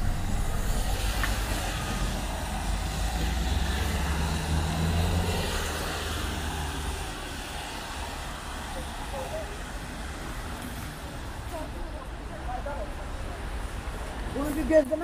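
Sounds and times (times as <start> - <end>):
tyre hiss on wet road: 0.0 - 11.8
car engines passing: 0.0 - 15.0.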